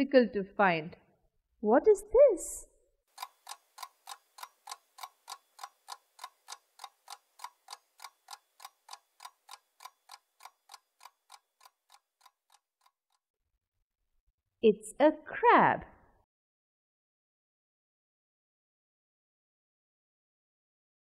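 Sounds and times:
clock ticking: 3.1 - 13.2.

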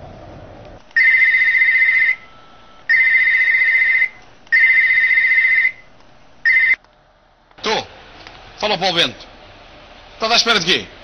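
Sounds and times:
phone ringing: 1.0 - 5.8, 6.4 - 6.8.

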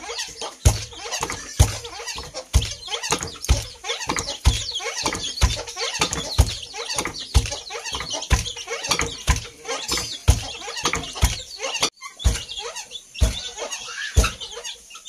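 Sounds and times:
wooden pestle thudding: 0.0 - 14.5
birds chirping and clucking: 0.0 - 15.0.

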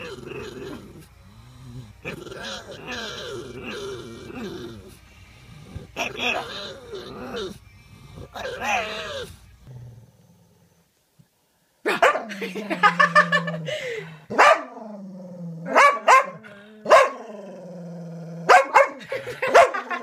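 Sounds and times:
dog growling: 0.0 - 10.8, 12.6 - 18.7
dog barking: 11.9 - 12.3, 14.3 - 14.7, 15.7 - 17.2, 18.5 - 20.0.

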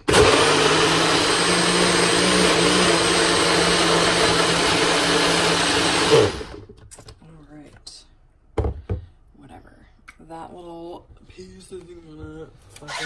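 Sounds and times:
blender running: 0.0 - 6.7.

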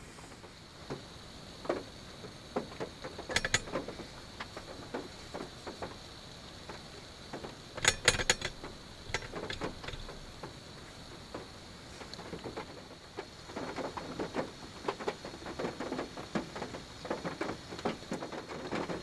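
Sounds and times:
metal plate clinking on stove: 3.3 - 3.8.

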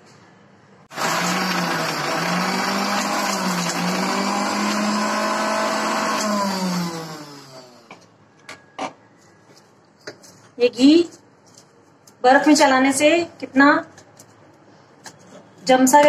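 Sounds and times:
mixer grinder running: 0.9 - 8.0
motor winding down: 1.0 - 7.9.

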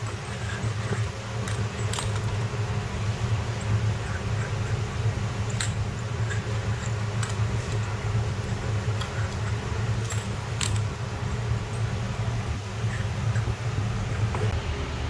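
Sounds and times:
steady low hum: 0.0 - 15.0
brass fittings clinking: 5.4 - 12.0.

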